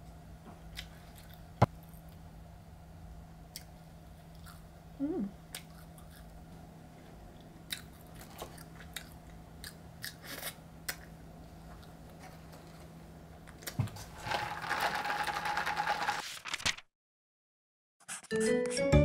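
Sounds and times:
low room hum: 0.0s - 16.2s
chewing crunchy food: 4.3s - 4.7s, 5.5s - 6.4s, 7.4s - 12.9s
person humming: 5.0s - 5.4s.

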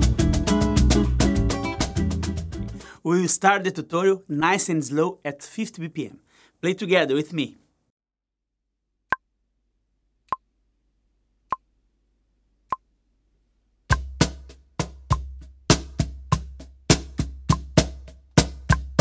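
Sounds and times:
cajon samba groove: 0.0s - 2.8s, 13.9s - 19.0s.

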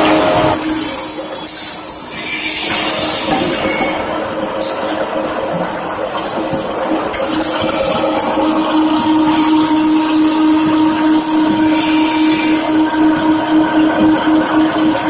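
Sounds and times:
motor hum: 0.0s - 1.2s
belt conveyor mechanical noise: 0.0s - 15.0s.

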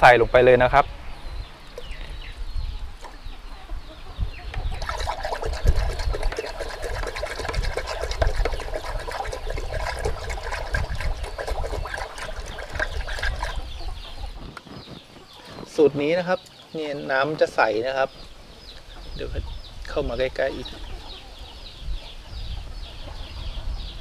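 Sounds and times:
liquid pouring into water: 4.7s - 13.6s.

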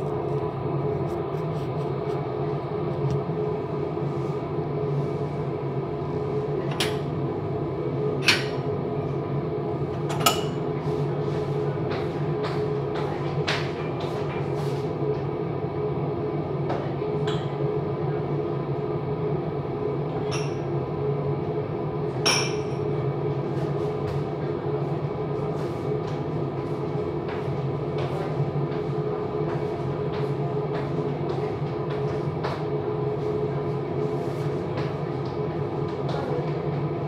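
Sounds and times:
low mechanical hum: 0.0s - 37.0s.

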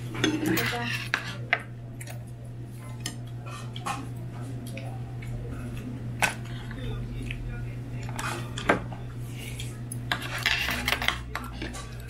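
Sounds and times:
cutlery and dishes clinking: 0.1s - 2.2s, 10.0s - 12.0s.

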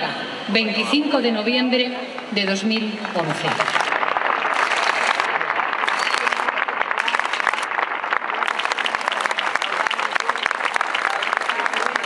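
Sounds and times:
large crowd applauding: 3.1s - 12.0s.

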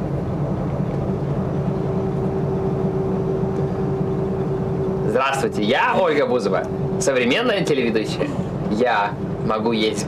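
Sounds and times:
steady low drone: 0.0s - 10.0s.

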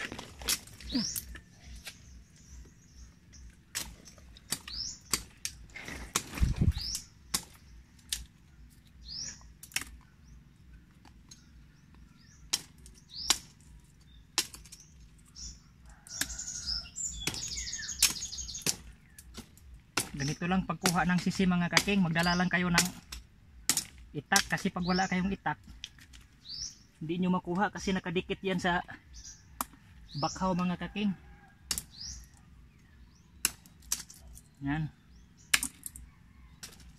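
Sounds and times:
blade knocking oysters off roots: 0.0s - 2.0s, 3.5s - 8.3s, 12.4s - 13.6s, 14.3s - 14.9s, 17.1s - 24.7s, 31.7s - 32.0s, 33.4s - 34.5s, 35.4s - 36.0s
high rising bird chirps: 0.7s - 5.7s, 6.4s - 10.6s, 11.3s - 19.3s.

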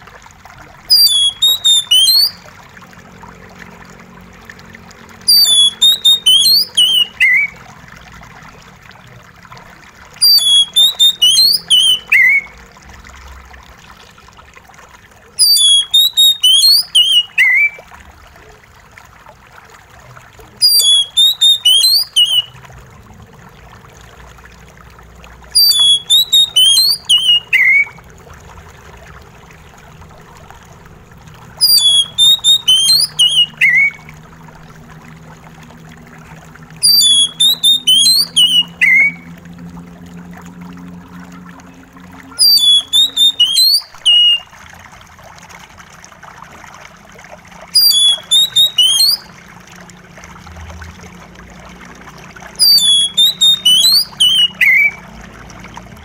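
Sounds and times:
trickle of running water: 0.0s - 56.0s
bird singing high whistled notes: 0.9s - 2.4s, 5.3s - 7.6s, 10.2s - 12.6s, 15.4s - 17.8s, 20.6s - 22.5s, 25.6s - 28.0s, 31.6s - 34.0s, 36.8s - 39.3s, 42.3s - 44.5s, 47.8s - 49.3s, 52.6s - 55.0s.

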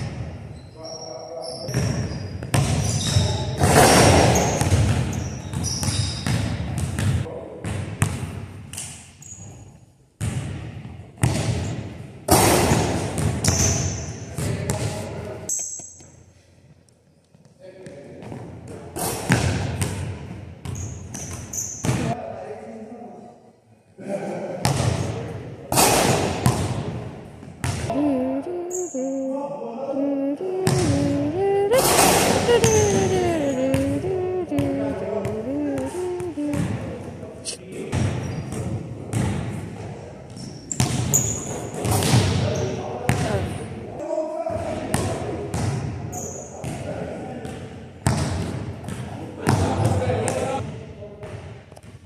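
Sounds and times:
basketball bouncing on wooden floor: 1.7s - 3.4s, 4.0s - 8.3s
ball slamming through rim: 1.7s - 8.4s, 10.2s - 14.9s, 19.0s - 22.1s, 24.6s - 27.0s, 40.8s - 42.5s
person singing melodic notes: 27.9s - 37.6s.

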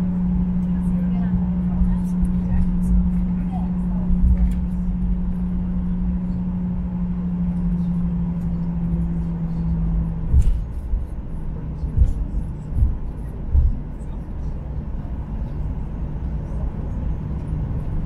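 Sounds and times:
airliner cabin hum: 0.0s - 18.0s
low rumble: 0.0s - 18.0s
short low thumps: 9.7s - 11.2s, 11.8s - 13.8s.

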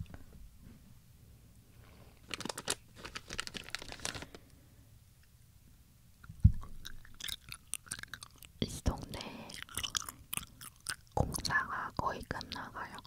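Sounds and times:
plastic packaging crinkling: 2.2s - 4.5s.

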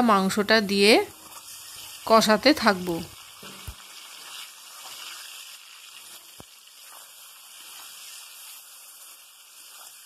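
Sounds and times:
chicken sizzling in oil: 0.0s - 10.0s.

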